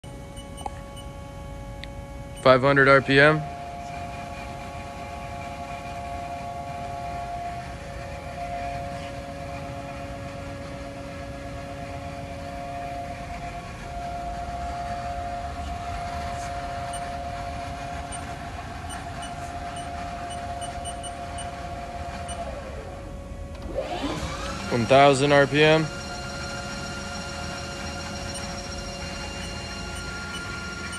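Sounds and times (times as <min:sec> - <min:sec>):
lathe spindle whine: 0:00.0 - 0:30.9
low machine hum: 0:00.0 - 0:30.9.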